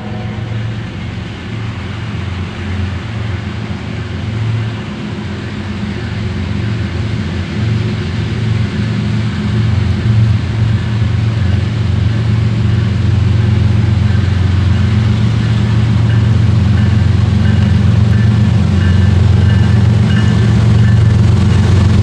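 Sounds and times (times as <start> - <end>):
diesel locomotive engine droning: 0.0 - 22.0.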